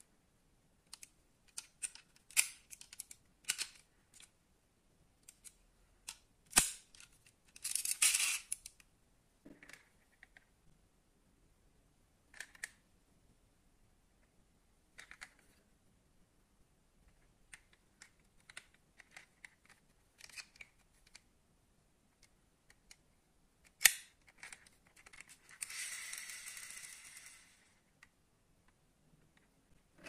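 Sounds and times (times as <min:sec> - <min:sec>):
fingers handling metal toy car: 0:00.8 - 0:04.4, 0:05.2 - 0:08.9, 0:12.3 - 0:12.8, 0:15.0 - 0:15.6, 0:17.1 - 0:21.2, 0:23.6 - 0:27.8.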